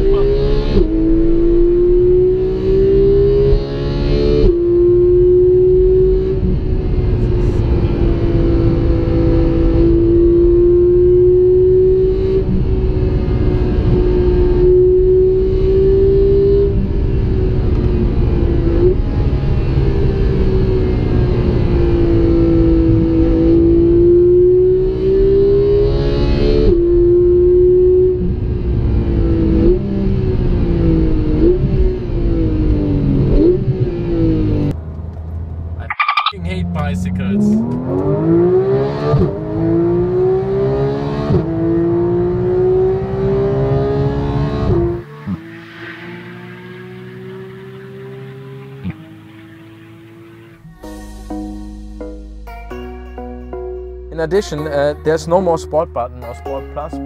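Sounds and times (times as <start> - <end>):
engine revving on downshifts: 0.0 - 34.8, 35.8 - 50.7
car engine pulling: 33.5 - 50.7.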